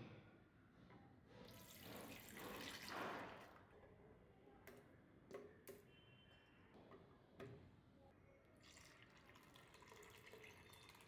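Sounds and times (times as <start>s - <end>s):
milk pouring into blender jar: 8.6s - 11.0s.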